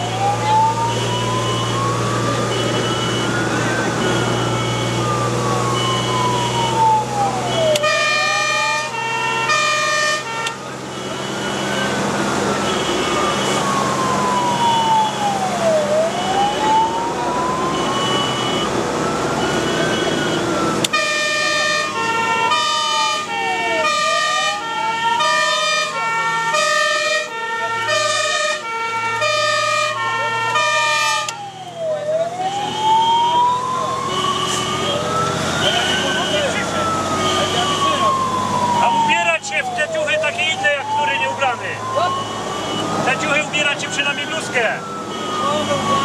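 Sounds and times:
fire engine siren wailing: 0.0 - 46.0
multi-tone horn: 7.8 - 10.6.

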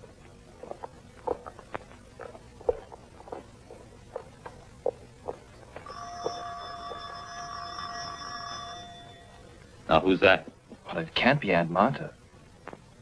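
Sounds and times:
electric doorbell buzzing: 5.8 - 9.5.

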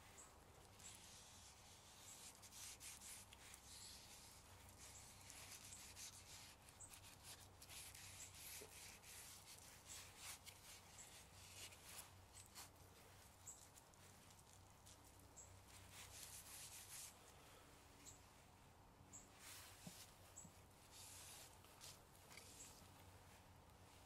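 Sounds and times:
cloth rubbing wooden bowl: 0.9 - 13.7, 15.7 - 17.1.

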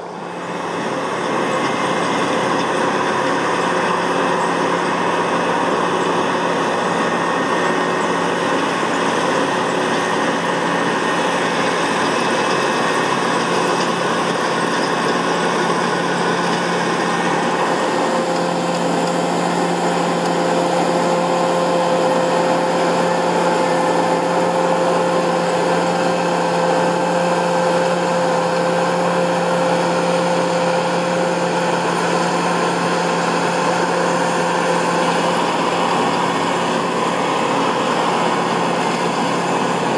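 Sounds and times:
combine harvester engine drone: 0.0 - 39.9
threshing mechanism whine: 0.0 - 39.9.

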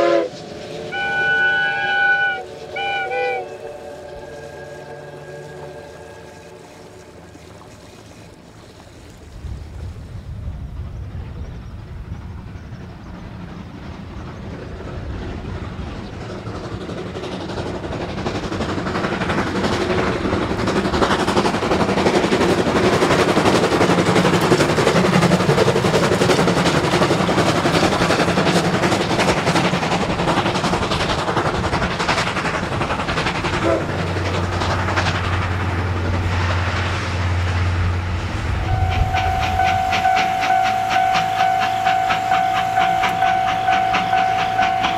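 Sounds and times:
steam locomotive running past: 0.0 - 44.9
wheels clattering over rail joints: 10.4 - 44.9.

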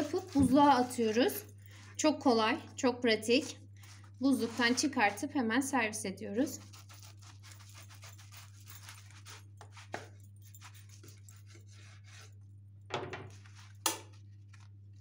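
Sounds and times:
knife crunching through toast crust: 6.6 - 12.4.

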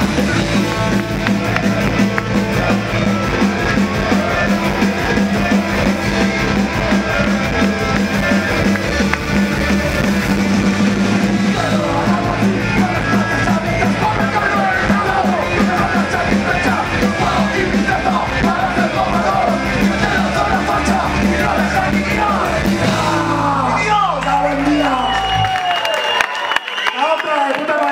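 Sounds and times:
yelled vocals: 0.0 - 25.5
punk rock band playing live: 0.0 - 25.7.

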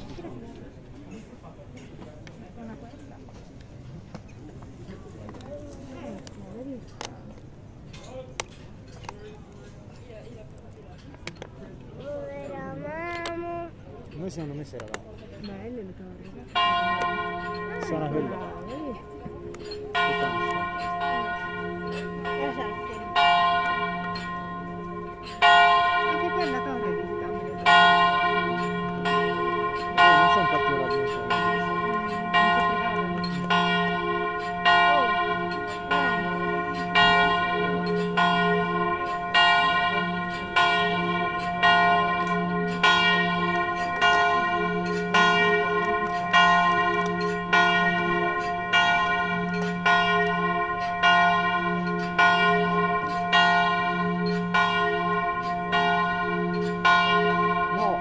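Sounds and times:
church bell tolling: 16.4 - 58.0.

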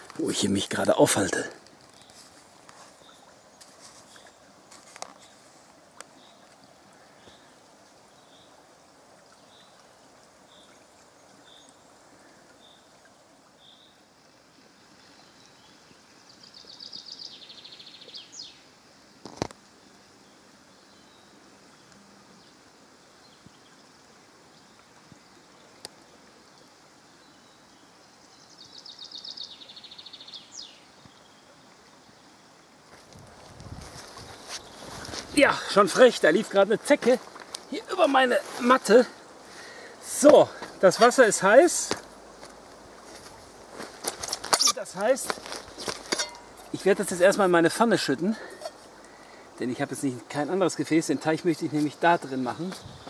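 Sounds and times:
songbirds singing: 0.0 - 18.7, 19.8 - 32.6, 33.7 - 53.0
babbling stream: 0.0 - 53.0.

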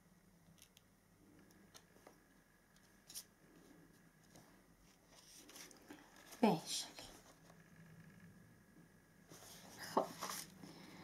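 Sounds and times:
light paper rustles: 4.2 - 7.4, 9.3 - 10.6.

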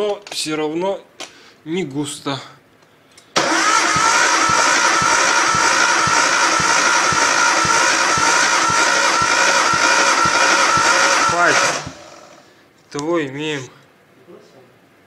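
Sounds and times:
starter motor cranking engine: 3.4 - 12.5.

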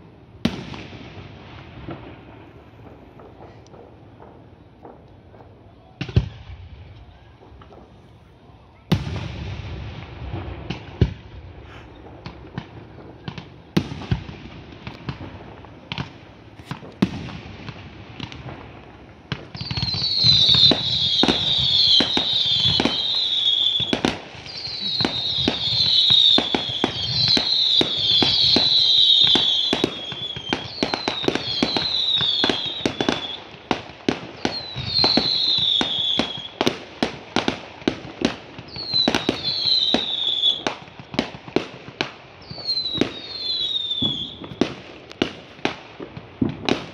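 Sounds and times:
firework bangs and pops: 0.0 - 46.9
firework whistles: 19.3 - 36.8, 37.4 - 41.3, 42.4 - 45.3.

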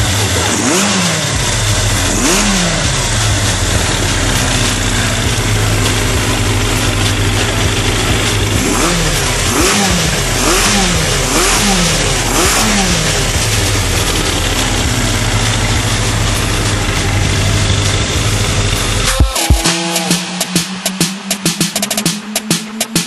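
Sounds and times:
engine throttle blips: 0.0 - 23.0
motorcycle engine idling: 0.0 - 23.0.

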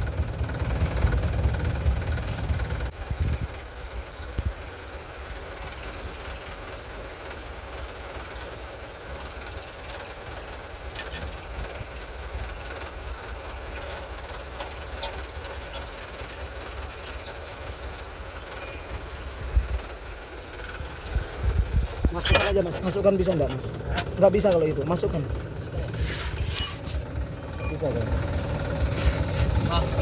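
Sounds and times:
engine idling: 0.0 - 30.0.

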